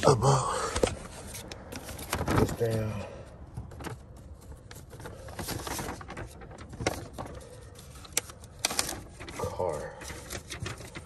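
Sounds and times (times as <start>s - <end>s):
paper rustling and crinkling: 0.8s - 3.0s, 3.6s - 11.0s
sharp paper crackles: 4.1s - 11.0s.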